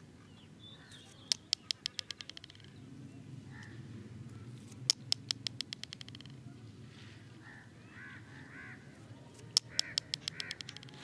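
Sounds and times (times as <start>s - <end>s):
quick chattering taps: 1.3s - 2.7s, 4.9s - 6.4s, 9.5s - 11.0s.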